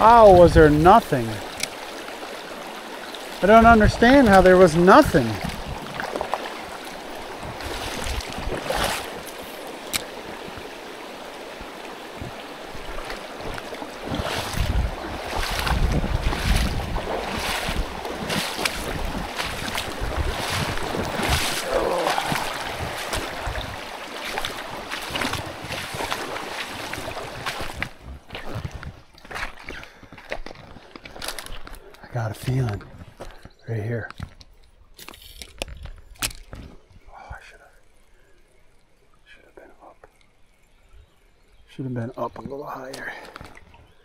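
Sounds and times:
wind buffeting the microphone: 0.0 - 1.6, 3.5 - 29.1
boots wading through water: 0.0 - 36.9
stream flowing: 0.0 - 44.0.

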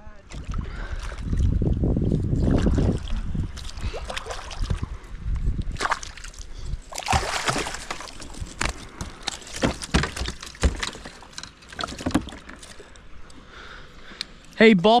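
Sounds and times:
river water splashing: 2.4 - 5.0, 5.7 - 13.2.

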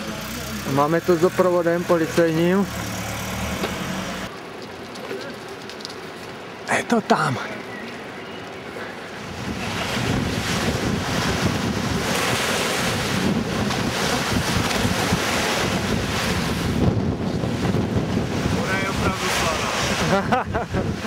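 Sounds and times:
sea surf washing on shore: 8.0 - 21.0
wind buffeting microphone: 8.9 - 21.0.

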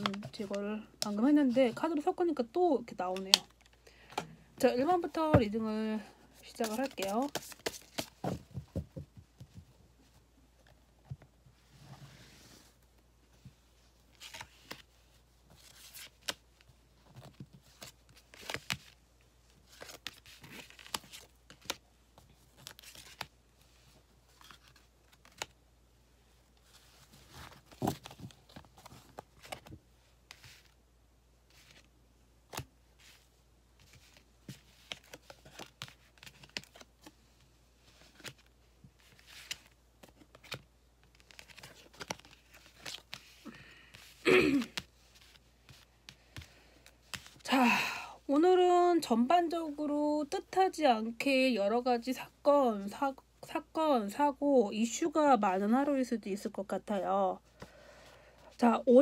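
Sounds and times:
cards sliding: 6.6 - 8.2.

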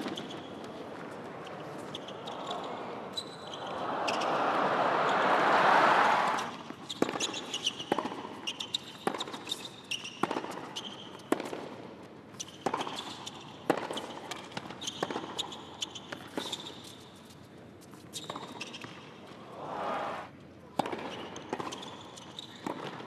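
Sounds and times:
sneakers squeaking: 0.0 - 0.7, 1.4 - 5.3, 6.4 - 11.3, 12.4 - 17.0.

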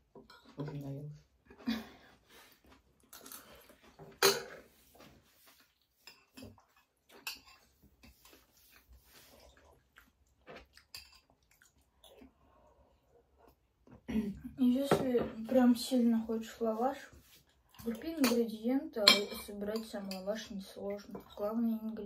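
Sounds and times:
chewing: 5.5 - 14.0
spoons clinking on ceramic bowls: 18.2 - 20.3.

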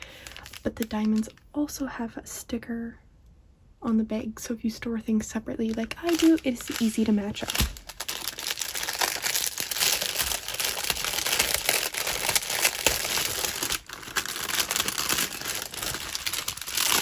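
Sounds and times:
plastic bags crinkling: 0.0 - 1.4, 5.6 - 17.0.

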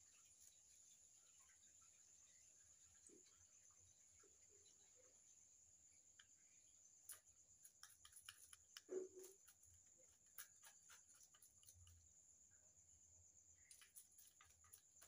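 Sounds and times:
knife scraping fish scales: 7.1 - 12.0, 13.7 - 15.0.

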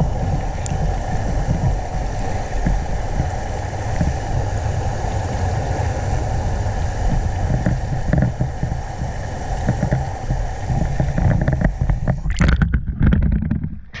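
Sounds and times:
steady hiss: 0.0 - 12.3
wind roaring and buffeting microphone: 0.0 - 14.0
sharp knocks and thumps: 7.5 - 8.8, 9.6 - 14.0.

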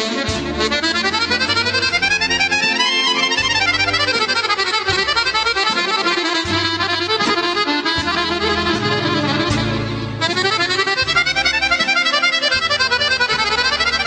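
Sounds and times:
accordion played fast: 0.0 - 14.0.

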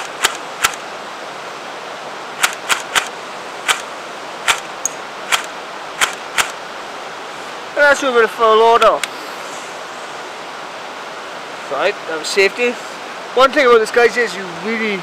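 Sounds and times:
river rushing: 0.0 - 15.0
airsoft rifle firing single shots: 2.4 - 4.7, 5.3 - 6.6.

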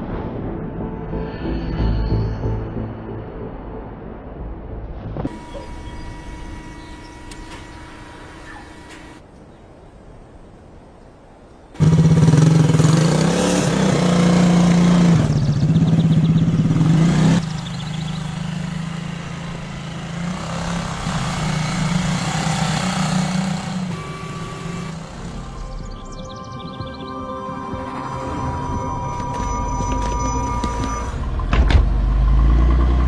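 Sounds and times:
vehicle engine droning: 5.2 - 9.3, 11.8 - 33.0.

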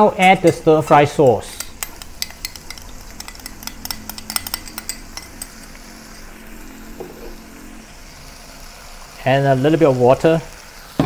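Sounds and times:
metal spatula scraping wok: 0.2 - 7.4
sauce pouring: 1.0 - 9.2.

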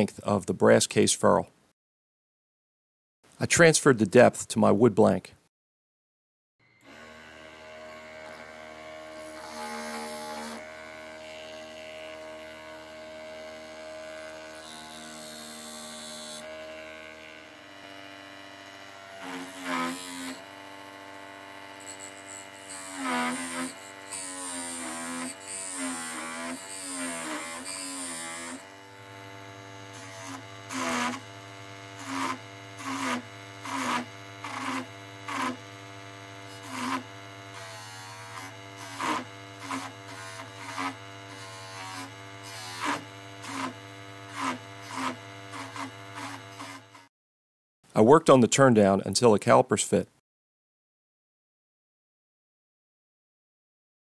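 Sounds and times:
small lathe motor running: 6.6 - 47.1
tool scraping wood: 6.8 - 47.1.

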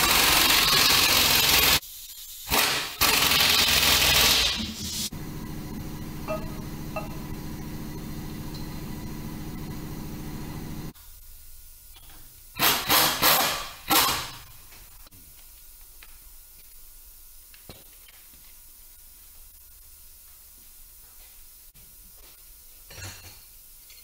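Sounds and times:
motor humming: 5.1 - 10.9.

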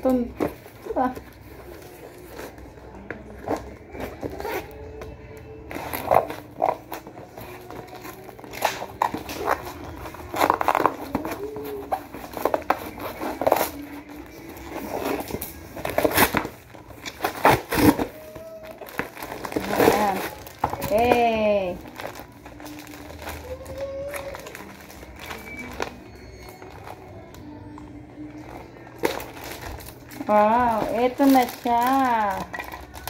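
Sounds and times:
cardboard box torn open: 14.8 - 21.3.

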